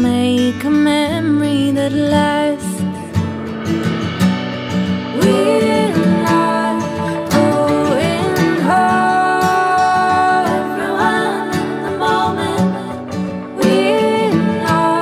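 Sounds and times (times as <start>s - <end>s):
guitar accompaniment: 0.0s - 15.0s
person singing long notes: 5.2s - 15.0s.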